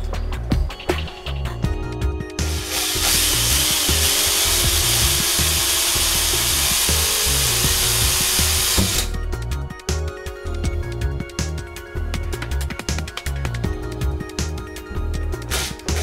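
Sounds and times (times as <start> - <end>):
electronic music with steady beat: 0.0 - 16.0
cordless drill boring into ceiling: 2.4 - 9.1.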